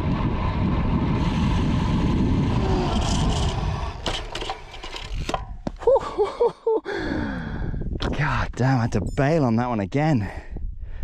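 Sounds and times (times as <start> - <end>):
wind rushing over microphone: 0.0 - 5.7, 7.1 - 11.0.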